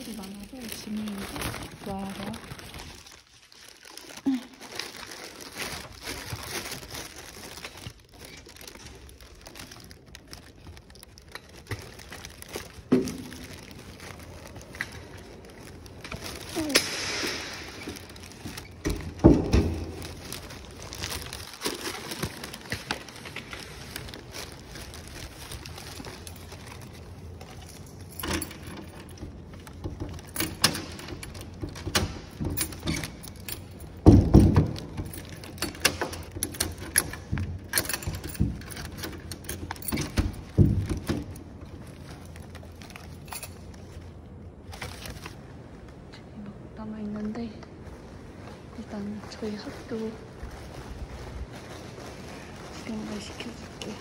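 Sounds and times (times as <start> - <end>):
belongings knocking and rustling: 5.5 - 45.0.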